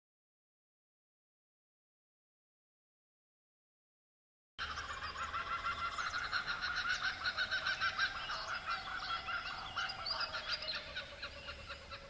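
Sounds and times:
chorus of frogs calling: 4.6 - 12.0.

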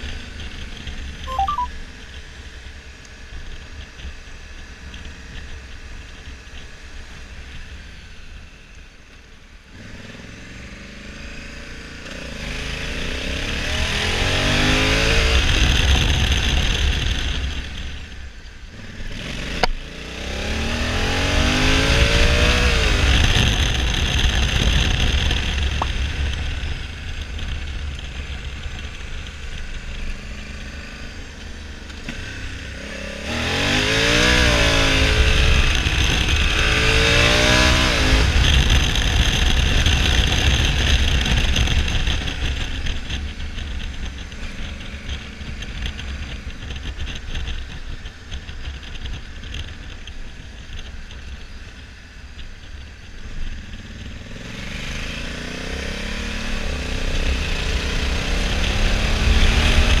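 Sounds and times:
motorcycle engine running: 0.0 - 60.0
wind rumble on microphone: 12.4 - 60.0.

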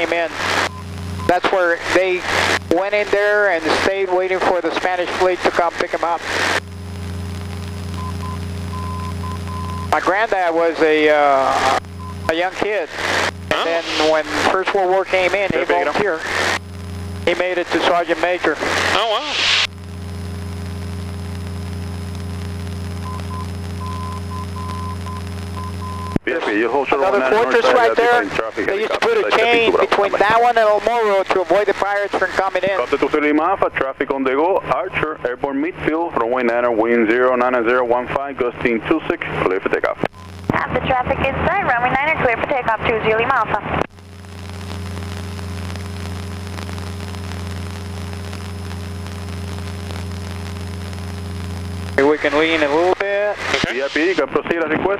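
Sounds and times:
airplane engine droning: 11.4 - 19.7
steady hiss: 51.8 - 54.3.

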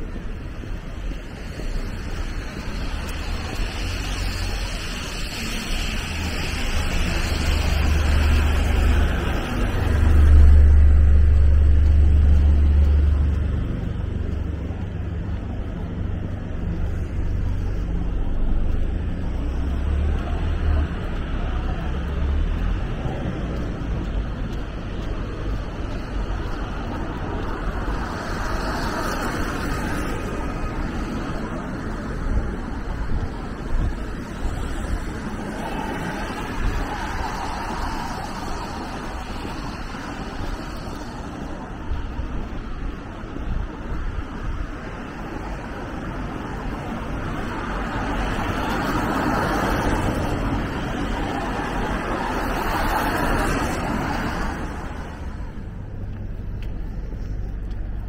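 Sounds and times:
city street traffic: 0.0 - 58.0
passing vehicle rumble: 0.0 - 58.0.

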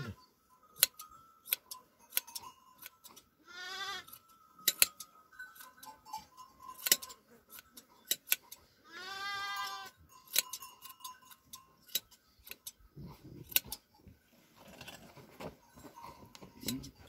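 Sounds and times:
shears snipping fleece: 0.8 - 3.2, 4.0 - 5.9, 6.7 - 8.6, 9.6 - 13.9
sheep bleating: 3.4 - 4.1, 8.8 - 10.0.

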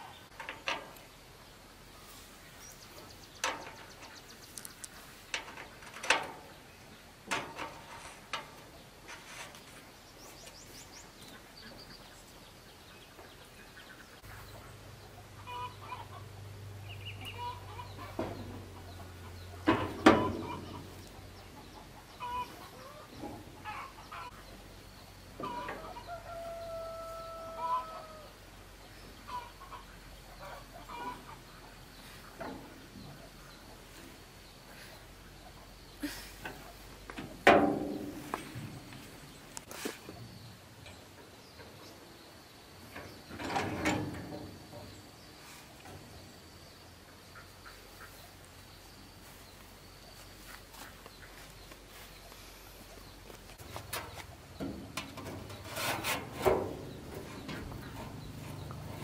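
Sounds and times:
chickens clucking: 2.0 - 24.7, 25.3 - 42.1, 47.1 - 59.0
rooster crowing: 25.5 - 28.4.

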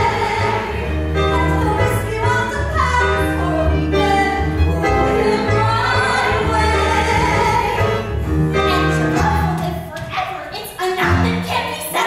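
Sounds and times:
voices singing sustained notes: 0.0 - 9.0
keyboard: 0.0 - 10.0
violin: 0.0 - 11.6.

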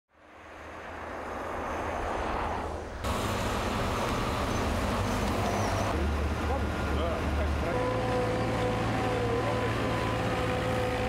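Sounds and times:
car tyres on asphalt: 0.2 - 8.1
bus engine humming: 2.6 - 11.0.

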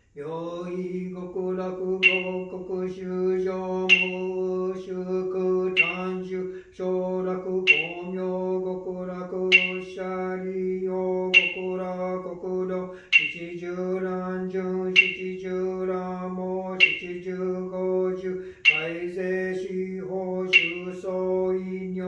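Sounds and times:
man chanting in monotone: 0.0 - 22.0
sharp rhythmic tap: 1.9 - 2.7, 3.8 - 4.5, 5.7 - 6.3, 7.6 - 8.2, 9.4 - 10.2, 11.3 - 12.0, 13.0 - 13.6, 14.8 - 15.6, 16.8 - 17.4, 18.6 - 19.1, 20.5 - 21.0.

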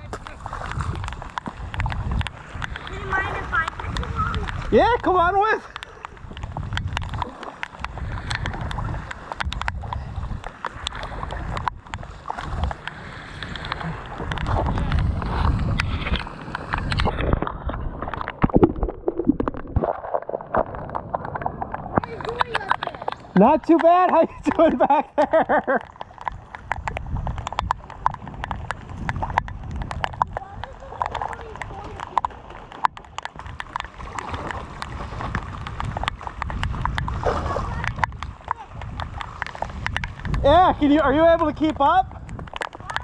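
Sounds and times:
wind rumble on microphone: 0.0 - 23.4, 24.2 - 43.0
faint moving water: 0.0 - 43.0
water drops tapping on plastic: 20.5 - 43.0.

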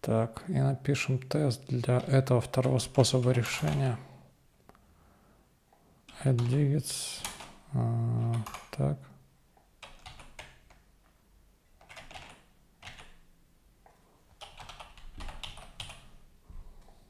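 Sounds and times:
computer keyboard typing: 2.0 - 3.9, 6.2 - 6.6, 7.2 - 7.6, 8.2 - 8.8, 9.8 - 10.8, 11.8 - 13.2, 14.3 - 16.1.

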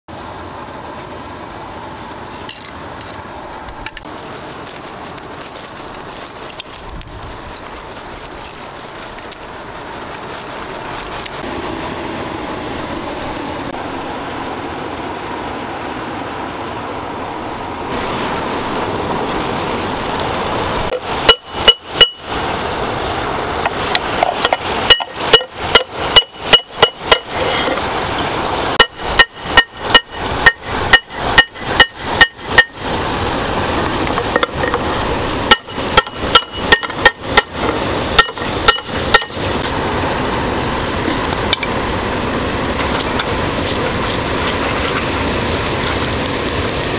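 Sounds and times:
fire hissing and crackling: 0.1 - 46.9
hammer striking hot steel: 20.9 - 22.3, 23.6 - 27.9, 28.8 - 32.9, 34.0 - 39.8.

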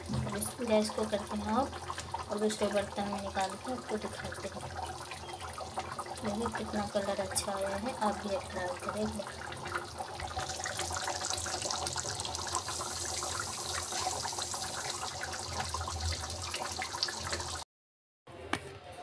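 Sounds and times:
gravy bubbling in a pan: 0.0 - 17.6.

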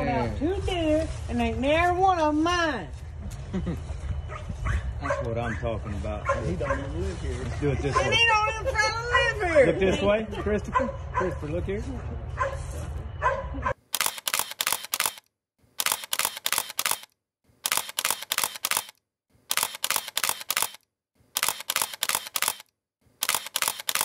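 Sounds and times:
camera shutter clicking: 14.0 - 20.8, 21.4 - 24.0.

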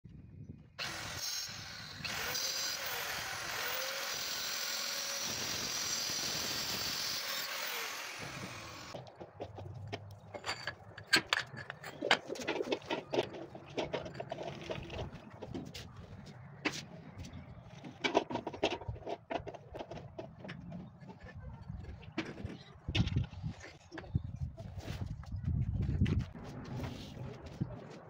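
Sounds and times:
angle grinder cutting marble: 0.8 - 9.0.

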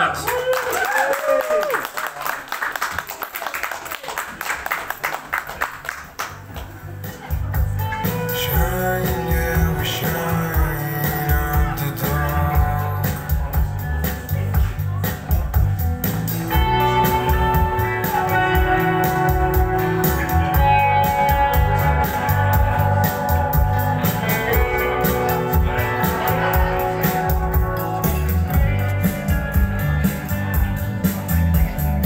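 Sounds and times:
drum kit fast beat: 7.1 - 32.0
guitar long ringing notes: 16.4 - 32.0.

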